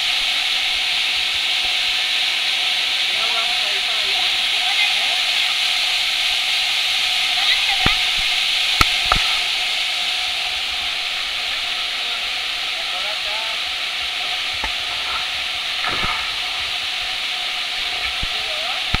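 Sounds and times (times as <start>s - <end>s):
waterfall rushing water: 0.0s - 19.0s.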